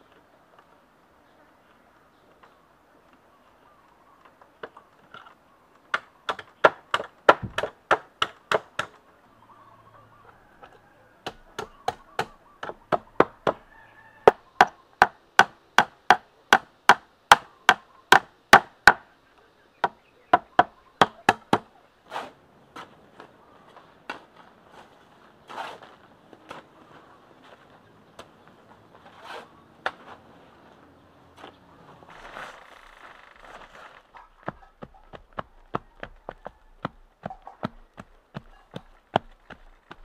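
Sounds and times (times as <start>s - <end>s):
hand tool striking bamboo: 5.9s - 9.0s, 11.2s - 13.6s, 14.3s - 19.0s, 19.8s - 21.7s.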